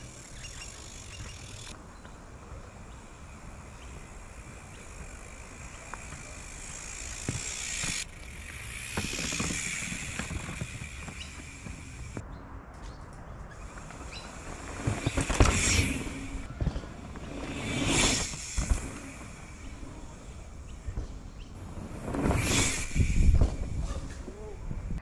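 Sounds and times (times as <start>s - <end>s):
bike clicks and crunches on dirt: 0.0s - 12.2s, 12.8s - 25.0s
rushing sound: 13.8s - 20.7s, 21.6s - 24.1s.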